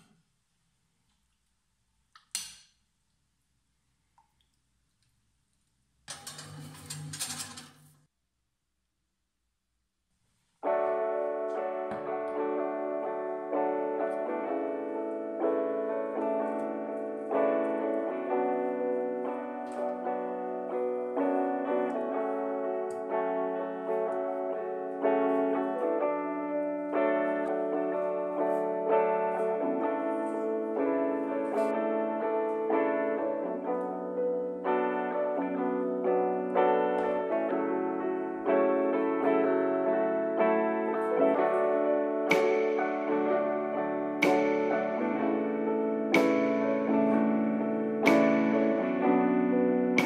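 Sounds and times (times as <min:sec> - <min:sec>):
keyboard melody music: 0:10.6 - 0:50.0.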